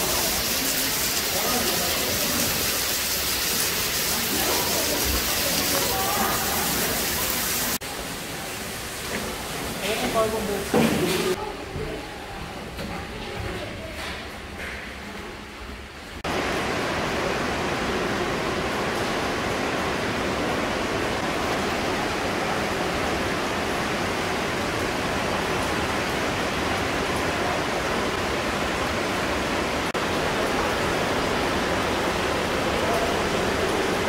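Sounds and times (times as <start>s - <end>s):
flowing water rushing in cave: 0.0s - 11.4s, 16.2s - 34.0s.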